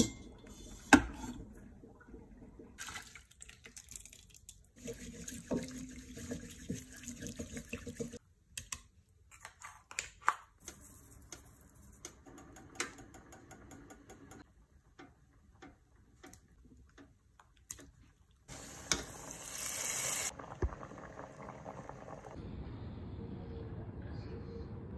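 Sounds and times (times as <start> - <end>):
pot steaming hiss: 18.5 - 22.4.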